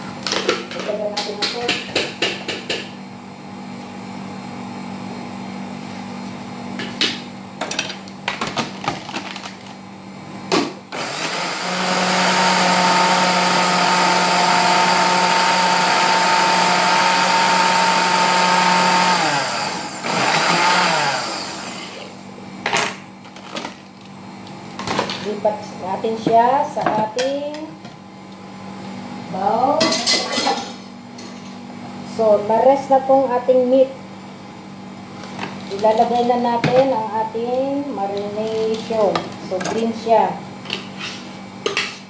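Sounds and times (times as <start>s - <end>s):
kitchen blender whining: 10.9s - 22.3s.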